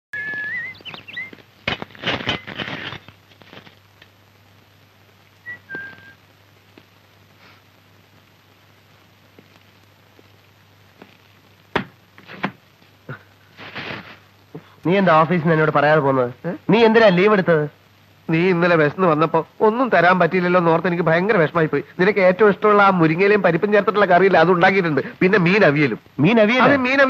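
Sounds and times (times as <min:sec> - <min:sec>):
short whistled notes: 0:00.2 - 0:01.3, 0:05.4 - 0:06.2.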